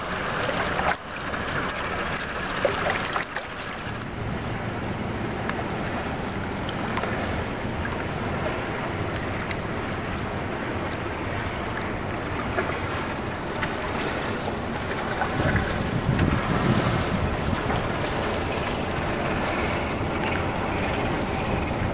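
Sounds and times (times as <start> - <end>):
water lapping: 0.0 - 21.9
ship diesel engine droning: 3.8 - 21.9
wind on microphone: 13.8 - 21.9.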